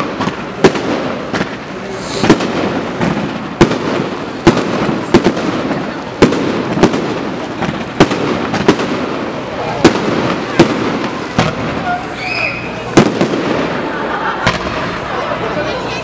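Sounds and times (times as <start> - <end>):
fireworks bangs: 0.0 - 16.0
steady background noise: 0.0 - 16.0.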